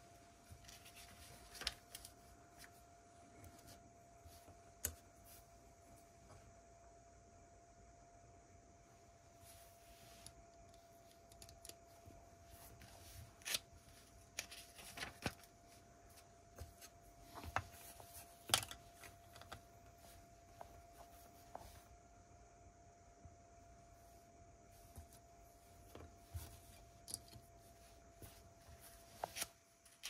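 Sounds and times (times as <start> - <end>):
small plastic clicks: 10.6 - 11.8.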